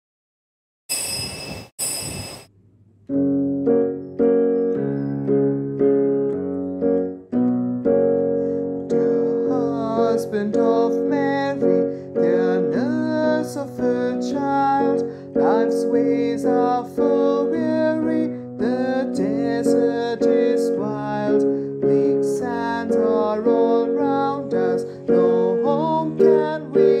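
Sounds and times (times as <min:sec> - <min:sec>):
bright ringing bursts: 0:00.9 - 0:02.5
electric keyboard playing hymn chords: 0:03.1 - 0:27.0.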